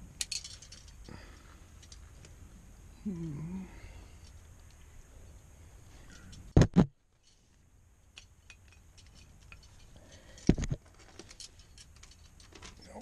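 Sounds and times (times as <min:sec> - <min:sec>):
climbing gear clinking: 0:00.2 - 0:02.3, 0:08.1 - 0:13.0.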